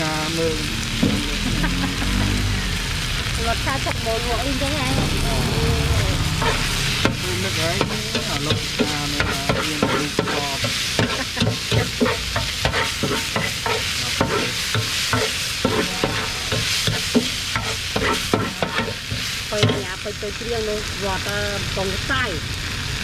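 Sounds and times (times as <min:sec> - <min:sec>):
noodles sizzling in a pan: 0:00.0 - 0:23.0
metal spatula scraping a pan: 0:06.2 - 0:20.0.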